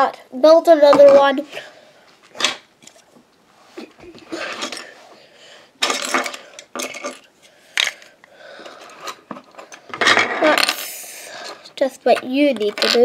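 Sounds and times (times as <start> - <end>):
plastic bricks clicking: 12.1 - 13.0.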